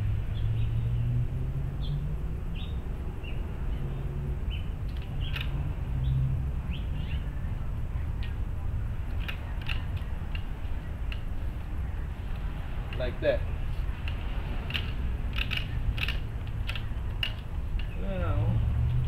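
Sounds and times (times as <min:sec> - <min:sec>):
low steady rumble: 0:00.0 - 0:19.0
small birds chirping: 0:01.8 - 0:08.4
sharp clicks: 0:04.8 - 0:05.6, 0:09.1 - 0:11.3, 0:14.0 - 0:18.0.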